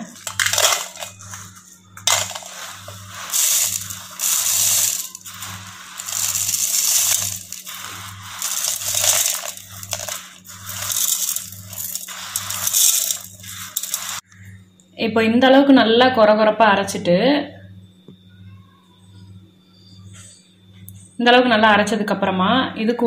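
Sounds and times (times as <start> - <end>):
seeds pattering on steel: 0.0 - 14.4.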